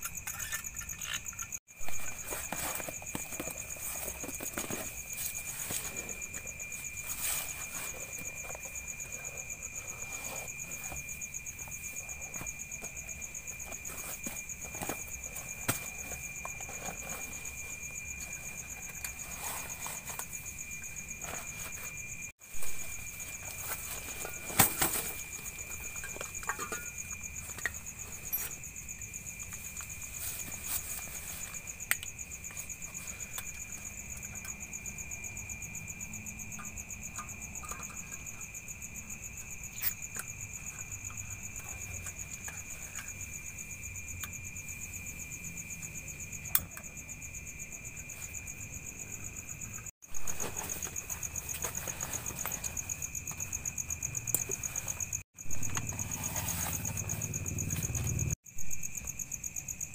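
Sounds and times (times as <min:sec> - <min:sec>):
camping gear clicks and knocks: 0:00.0 - 0:34.6, 0:49.6 - 0:58.4
crickets and night insects chirring: 0:00.0 - 0:59.9.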